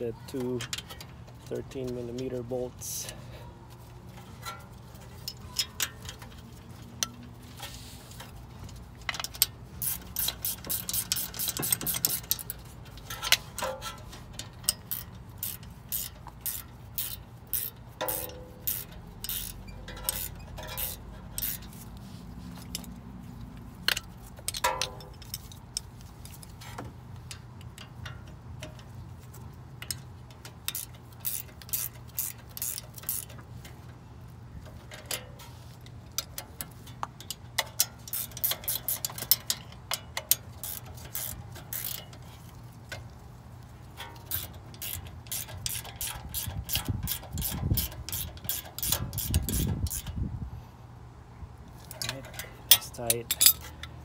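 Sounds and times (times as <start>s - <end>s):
hand ratchet clicking: 8.7s - 22.0s, 29.8s - 33.8s, 36.1s - 42.2s, 44.0s - 50.2s, 51.8s - 54.0s
metallic tool clinks: 52.0s - 53.8s.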